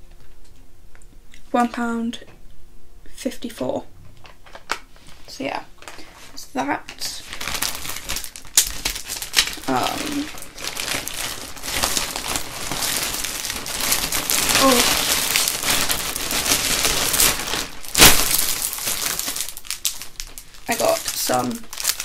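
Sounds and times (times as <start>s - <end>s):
plastic packaging crinkling: 4.2s - 6.3s, 6.9s - 22.0s.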